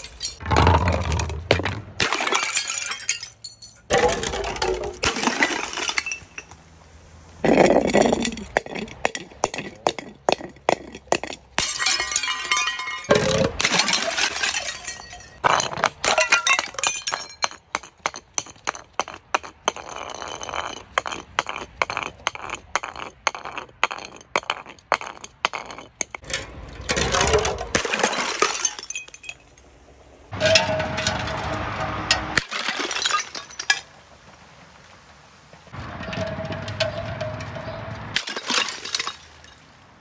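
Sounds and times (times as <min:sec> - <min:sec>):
glass bottles clinking down steps: 0:00.0 - 0:06.6, 0:07.4 - 0:29.6, 0:32.4 - 0:33.8, 0:36.0 - 0:39.5
glass shattering: 0:00.0 - 0:06.7, 0:07.4 - 0:29.7, 0:32.4 - 0:33.9, 0:38.2 - 0:39.7.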